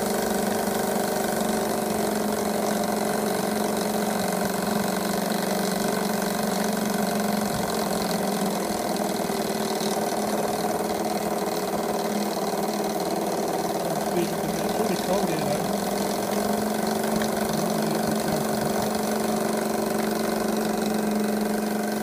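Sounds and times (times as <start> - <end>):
steam engine running fast: 0.0 - 22.0.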